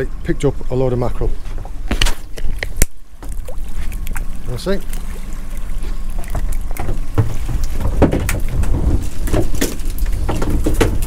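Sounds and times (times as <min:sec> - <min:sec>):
boat noise: 0:00.0 - 0:11.0
knocks and rattles of fish: 0:01.5 - 0:11.0
wind rumble: 0:05.2 - 0:11.0.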